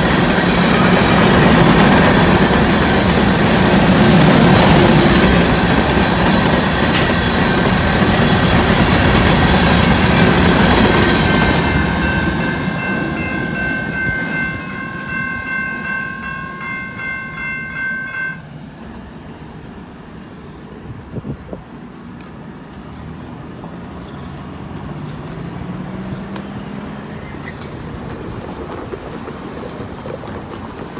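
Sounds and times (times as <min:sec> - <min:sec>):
crossing warning bell dinging: 0:00.0 - 0:18.8
freight train wheels rolling: 0:00.0 - 0:30.9.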